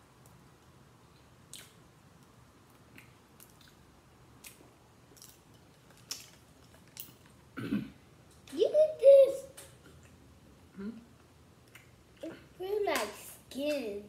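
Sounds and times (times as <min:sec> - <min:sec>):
quiet chewing: 0:01.5 - 0:07.4
crab shells cracking: 0:05.2 - 0:07.4.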